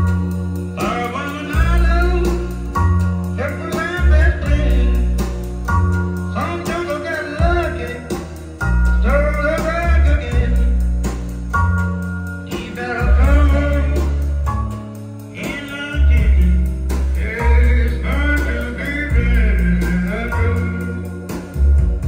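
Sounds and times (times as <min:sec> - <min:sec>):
deep sustained bass line: 0:00.0 - 0:22.0
guitar: 0:00.0 - 0:22.0
man singing blues: 0:00.8 - 0:05.4, 0:06.3 - 0:10.9, 0:12.4 - 0:14.5, 0:15.3 - 0:21.4.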